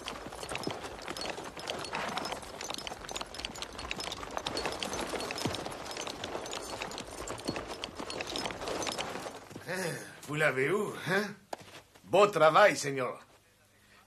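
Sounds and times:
horse hoofbeats galloping: 0.0s - 9.8s.

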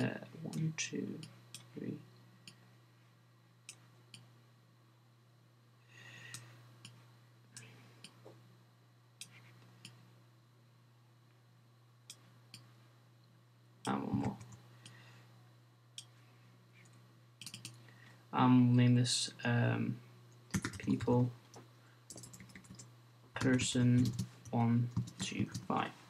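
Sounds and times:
low electrical hum: 0.0s - 26.0s
computer mouse clicks: 16.8s - 17.8s.

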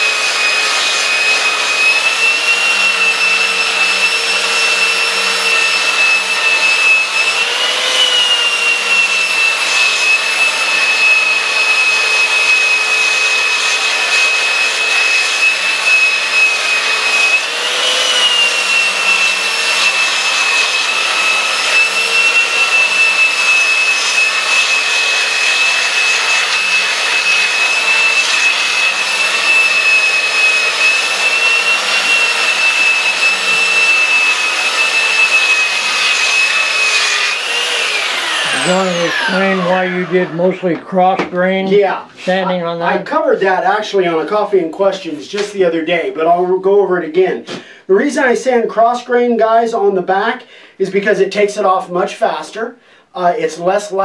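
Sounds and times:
belt sander sanding wood: 0.0s - 42.6s.

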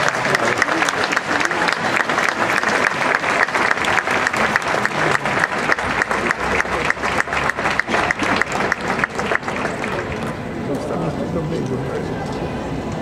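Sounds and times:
audience applauding: 0.0s - 10.7s.

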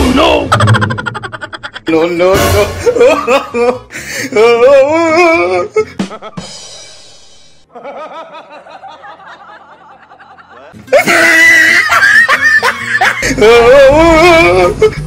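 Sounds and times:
man snickering: 2.8s - 3.9s.

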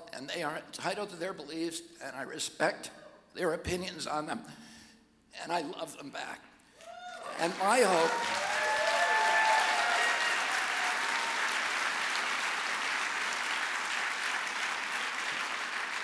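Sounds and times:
audience cheering: 6.8s - 16.0s
audience applauding: 7.0s - 16.0s.

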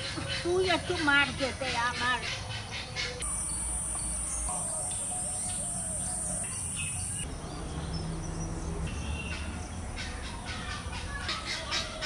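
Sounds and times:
bird chirps: 0.7s - 12.0s
insect buzzing: 3.2s - 7.2s.

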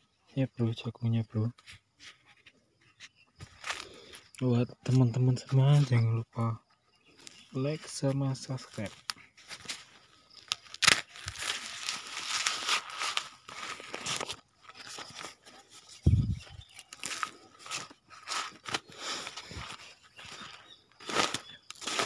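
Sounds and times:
dry leaves crunching underfoot: 7.2s - 22.0s.

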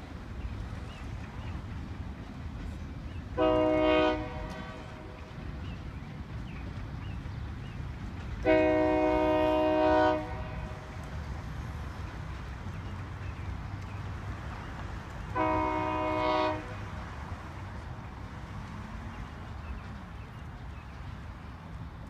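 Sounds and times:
freight cars rumbling: 0.0s - 22.0s
locomotive air horn: 3.4s - 5.2s, 8.4s - 10.8s, 15.3s - 16.8s.

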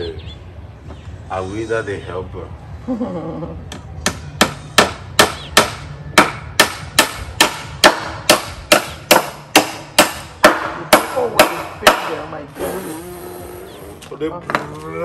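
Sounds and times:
hammer driving nails into wood: 4.1s - 12.2s.

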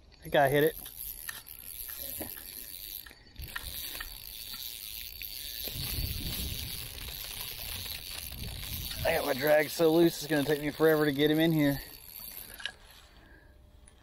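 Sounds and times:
fishing reel drag and clicks: 0.3s - 13.1s.

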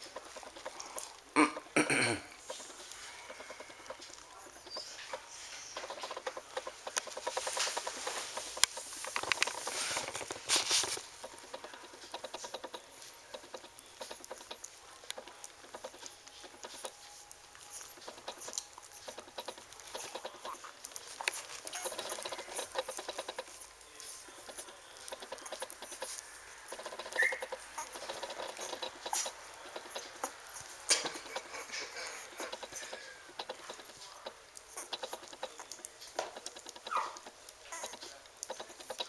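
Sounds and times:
puppies suckling: 0.0s - 39.0s.

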